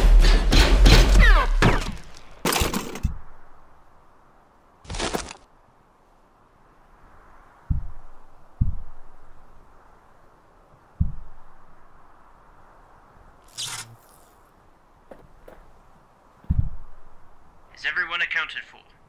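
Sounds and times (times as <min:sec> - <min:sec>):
dull thuds: 0:07.6 - 0:09.5, 0:11.0 - 0:11.8, 0:16.4 - 0:17.4
deep rumble: 0:07.6 - 0:09.9, 0:16.5 - 0:17.5.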